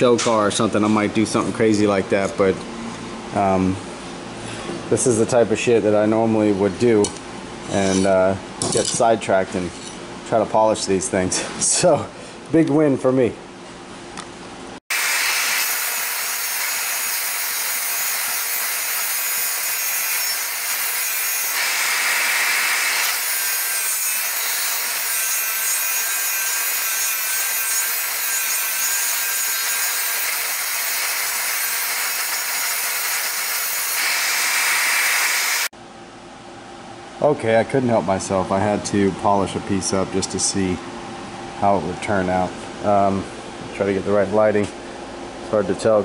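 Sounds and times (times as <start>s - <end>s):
bench grinder motor humming: 14.9s - 35.7s.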